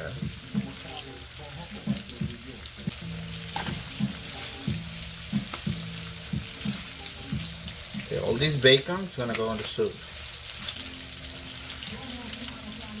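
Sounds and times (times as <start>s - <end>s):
bacon sizzling in a skillet: 0.0s - 13.0s.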